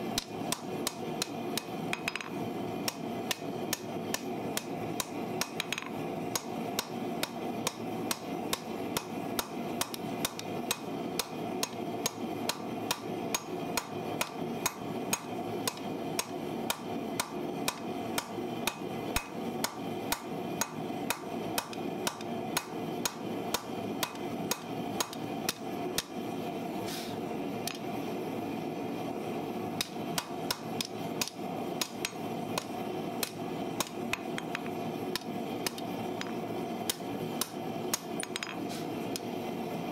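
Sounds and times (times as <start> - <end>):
steady hum: 0.0 - 39.9
hammer striking steel on anvil: 0.2 - 26.1.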